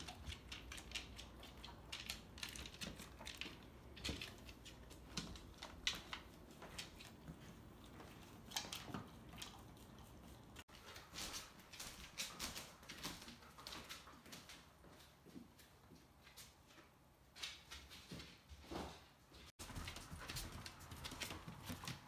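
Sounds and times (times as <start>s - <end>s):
dog crunching food: 0.0s - 10.6s.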